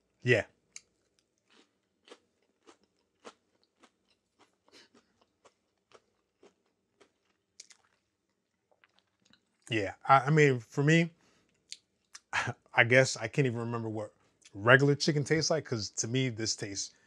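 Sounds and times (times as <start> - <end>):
person chewing crunchy food: 0.8 - 9.6.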